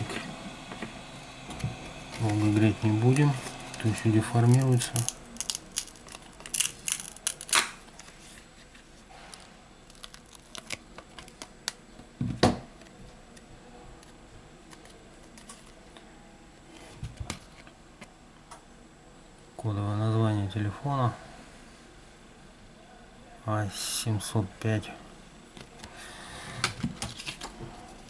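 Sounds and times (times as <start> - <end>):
adhesive glue tearing: 4.4 - 7.8.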